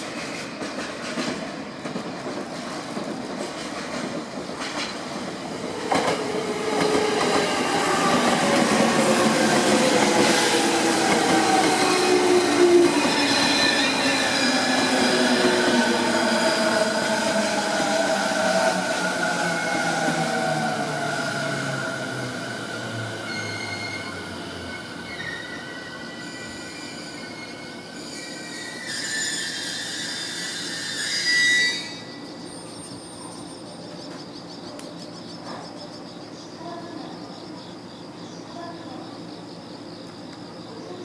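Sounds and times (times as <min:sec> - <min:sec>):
train wheels squealing on curve: 0:05.8 - 0:34.0.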